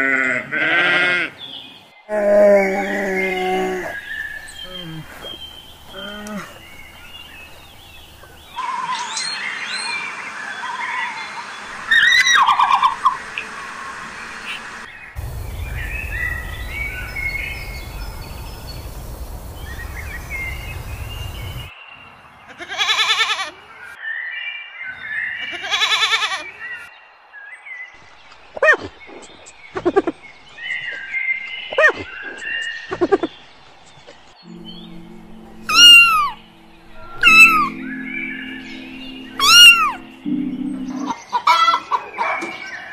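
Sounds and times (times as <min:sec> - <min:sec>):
low background tones: 0:02.2 - 0:08.6, 0:14.6 - 0:21.7, 0:34.4 - 0:41.3
quavering animal calls: 0:02.2 - 0:09.2, 0:15.2 - 0:21.7, 0:35.7 - 0:40.4
faint bird chirps: 0:02.8 - 0:10.0, 0:15.2 - 0:21.7, 0:28.7 - 0:41.4
high-pitched falling animal calls: 0:10.6 - 0:13.3, 0:15.2 - 0:21.7, 0:35.6 - 0:42.1
low rumble: 0:15.2 - 0:21.7.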